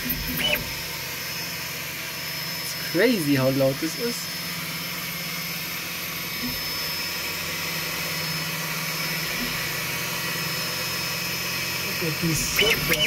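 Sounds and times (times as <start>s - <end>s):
three d printer stepper motors: 0.0s - 0.9s, 11.8s - 13.0s.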